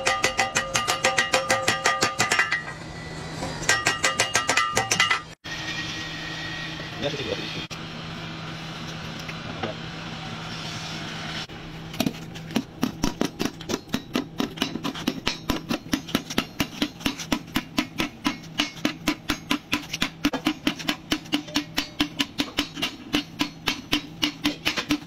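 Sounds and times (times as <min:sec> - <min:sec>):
hammer striking hot steel on anvil: 0:00.0 - 0:05.4, 0:12.8 - 0:25.0
mechanical hum and hiss: 0:05.5 - 0:15.4.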